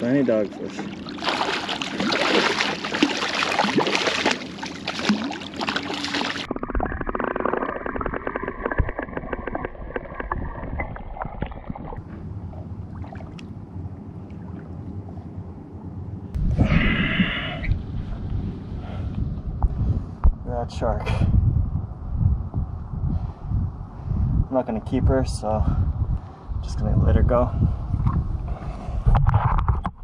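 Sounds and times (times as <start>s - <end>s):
fish thrashing and splashing: 0.8s - 12.0s
rapid small clicks underwater: 6.5s - 12.0s.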